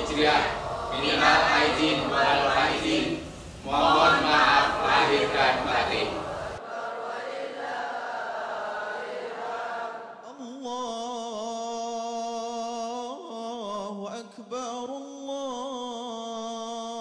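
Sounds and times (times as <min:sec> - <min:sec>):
voices chanting together: 0:00.0 - 0:10.7.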